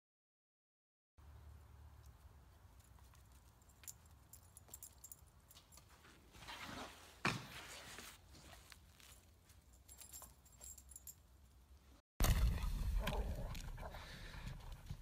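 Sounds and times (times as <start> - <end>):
dog collar tags jingling: 2.7 - 6.0, 8.9 - 11.6.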